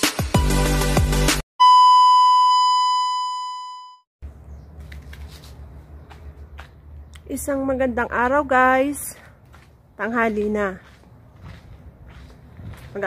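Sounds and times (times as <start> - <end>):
background music: 0.0 - 1.4
loud electronic beep: 1.6 - 4.0.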